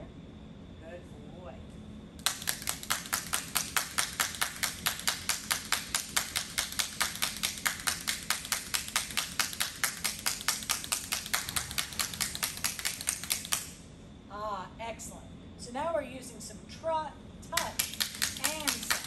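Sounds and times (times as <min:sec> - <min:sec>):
training clapper clicking: 0:17.6 - 0:19.0.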